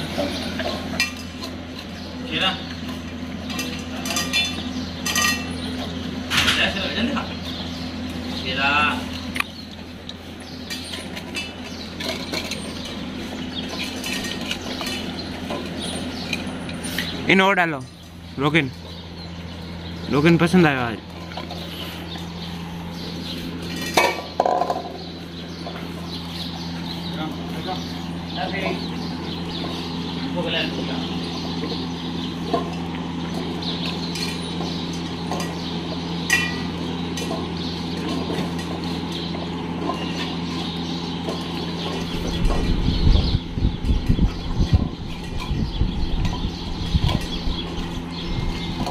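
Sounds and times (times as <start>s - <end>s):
mechanical hum: 0.0s - 48.9s
metal bowls clinking on tiles: 0.6s - 1.6s, 3.4s - 6.8s, 10.7s - 13.0s, 13.7s - 17.0s, 23.7s - 24.9s, 36.2s - 38.9s.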